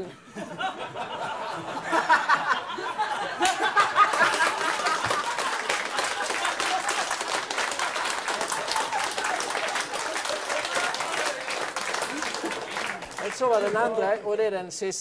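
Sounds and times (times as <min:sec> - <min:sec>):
studio audience laughing: 0:00.3 - 0:11.3, 0:11.9 - 0:13.1
audience applause: 0:03.3 - 0:14.0.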